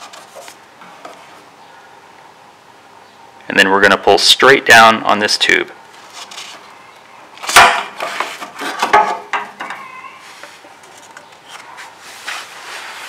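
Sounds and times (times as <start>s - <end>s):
plastic rubbing and scraping: 6.0s - 6.7s, 10.2s - 13.0s.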